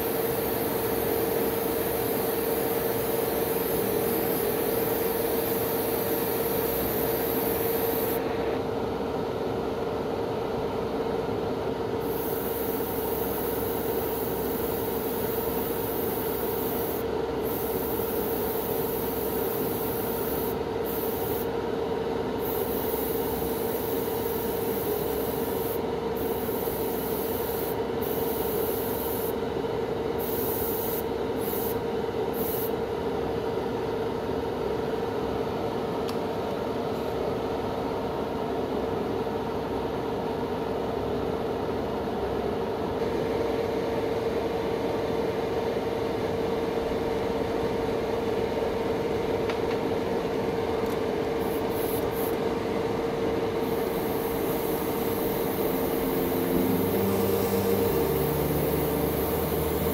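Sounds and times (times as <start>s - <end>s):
air compressor humming: 0.0s - 8.6s, 12.0s - 29.4s, 50.8s - 59.9s
airbrush hissing: 3.7s - 8.2s, 15.2s - 21.5s, 22.4s - 29.3s, 51.4s - 52.4s, 53.6s - 59.9s.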